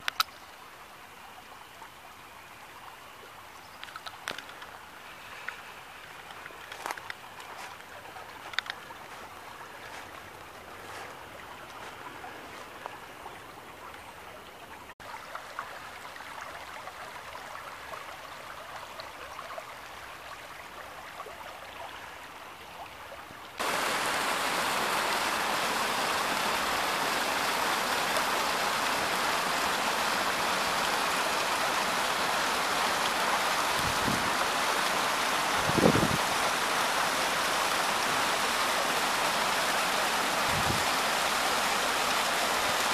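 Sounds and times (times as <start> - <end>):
faint clicks: 0.0 - 0.6, 3.8 - 4.8, 5.4 - 8.9
creek flowing quietly: 0.0 - 42.9
waterfall rushing over boulder: 23.6 - 42.9.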